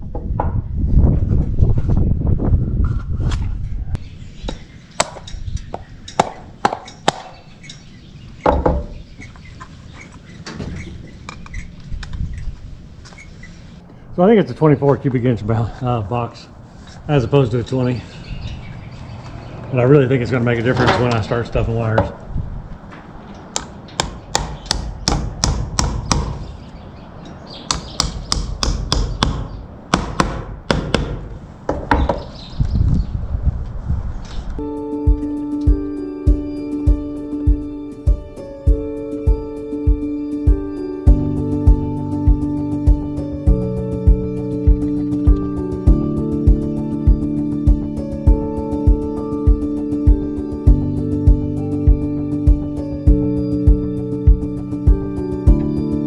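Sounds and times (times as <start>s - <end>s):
hammer tapping: 23.5s - 26.4s, 27.7s - 32.2s.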